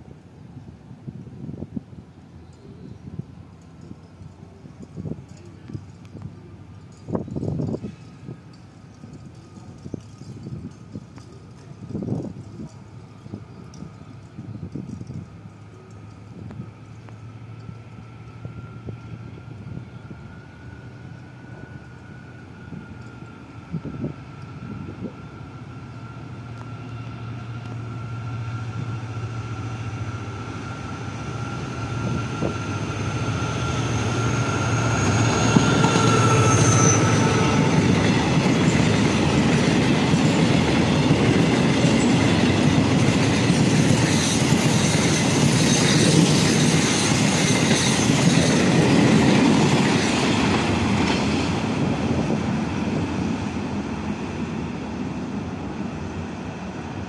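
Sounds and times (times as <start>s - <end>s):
diesel locomotive engine hum: 0.0s - 57.0s
wagons clattering over rail joints: 3.6s - 18.4s, 34.0s - 52.3s
high-pitched whine: 15.9s - 52.6s.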